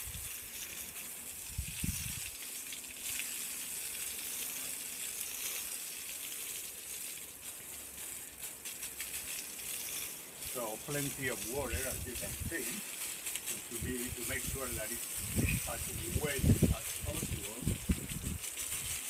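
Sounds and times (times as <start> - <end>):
hose spraying water on wall: 0.0 - 19.0.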